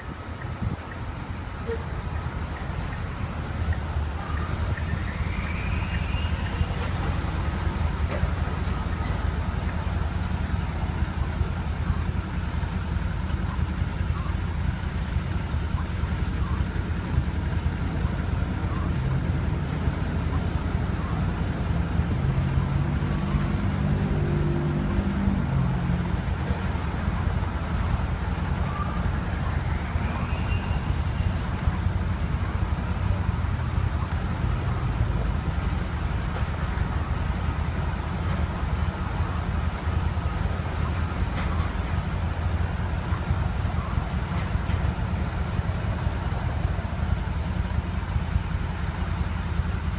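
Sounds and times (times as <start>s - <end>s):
engine idling: 0.0s - 49.9s
street traffic: 0.0s - 49.9s.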